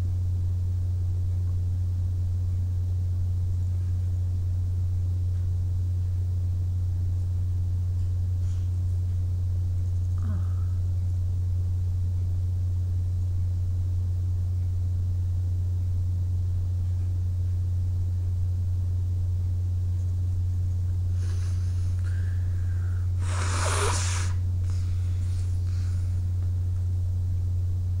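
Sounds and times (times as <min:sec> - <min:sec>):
steady low hum: 0:00.0 - 0:28.0
person blowing air through nose: 0:21.1 - 0:26.0.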